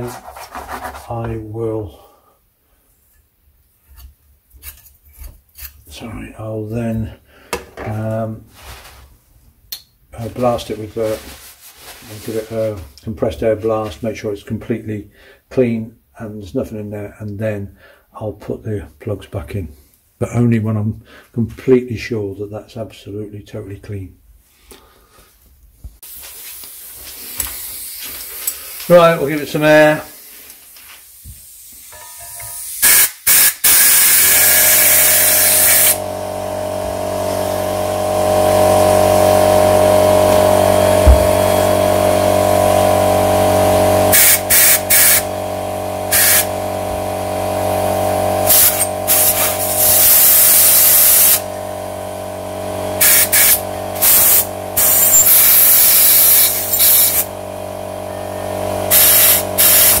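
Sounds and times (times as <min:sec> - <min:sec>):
air blow gun hissing bursts: 0:26.1 - 0:31.9, 0:32.5 - 0:51.7, 0:52.9 - 0:57.3, 0:58.8 - 1:00.0
air compressor motor hum: 0:31.5 - 1:00.0.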